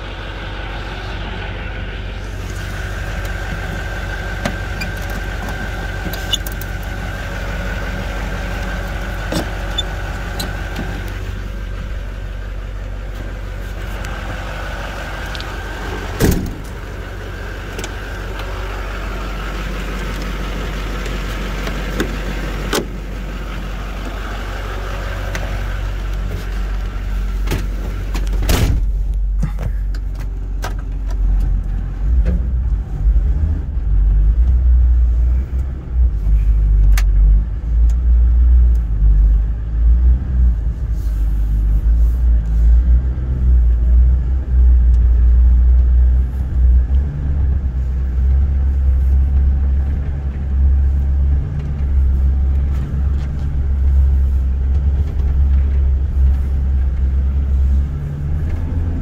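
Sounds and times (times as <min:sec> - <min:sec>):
diesel truck engine idling: 0:00.0 - 0:59.0
door and panel clunks: 0:16.2 - 0:16.7.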